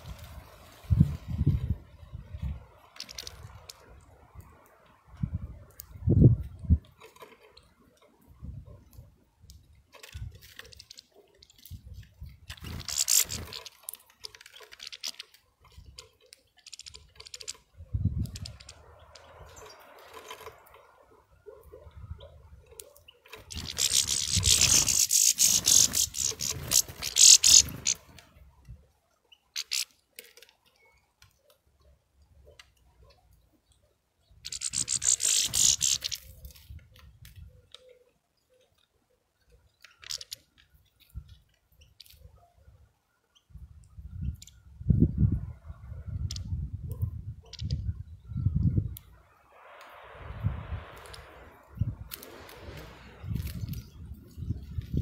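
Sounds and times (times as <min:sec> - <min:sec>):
birds cracking seeds: 0:02.8 - 0:04.7, 0:09.4 - 0:21.7, 0:22.6 - 0:28.5, 0:29.4 - 0:42.4, 0:50.8 - 0:55.0
rasping rustle: 0:23.2 - 0:28.2.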